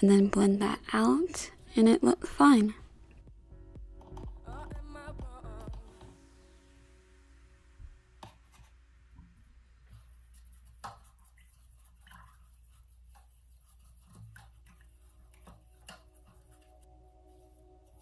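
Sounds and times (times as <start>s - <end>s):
paintbrush swirling in plastic cup: 9.8s - 18.0s.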